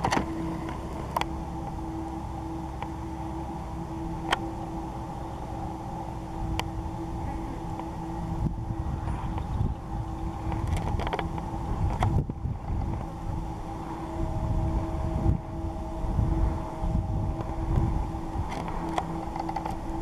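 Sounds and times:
steady low hum: 0.0 - 20.0
wind on microphone: 0.0 - 20.0.

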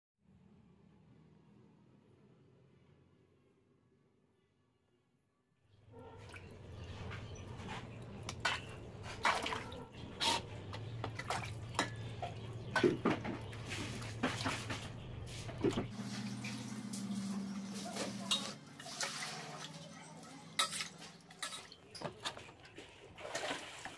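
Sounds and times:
water sloshing and splashing: 6.0 - 23.9.

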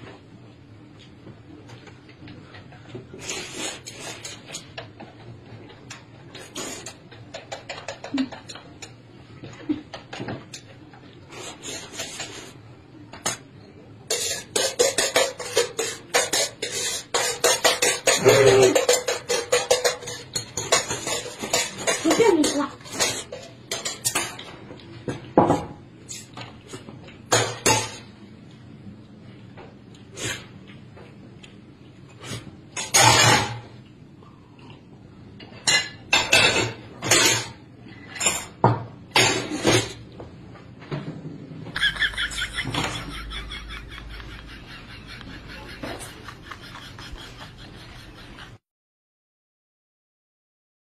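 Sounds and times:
noisy hurried eating: 0.9 - 24.9.

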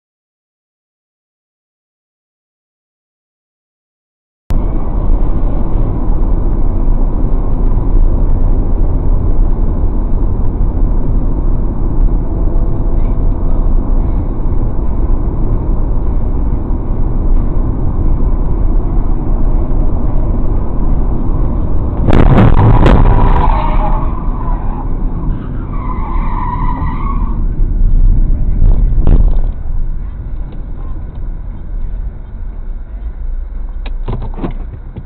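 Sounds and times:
car road and engine rumble: 4.5 - 35.0
loud vehicle crash: 21.8 - 30.9.

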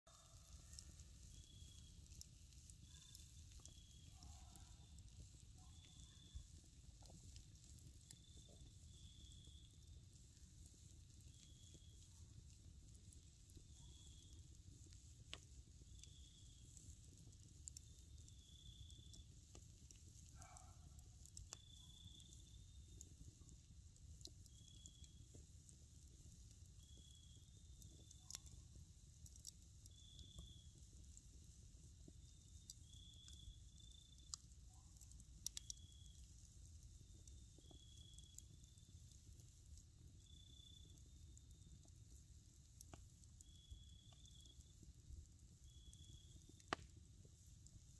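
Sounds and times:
faint high chirp: 0.1 - 2.0, 2.8 - 4.9, 5.6 - 6.5
campfire crackling: 0.1 - 47.9.

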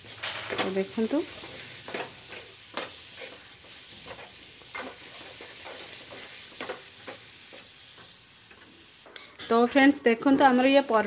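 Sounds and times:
steel spoon scraping a steel pan: 0.2 - 7.6.

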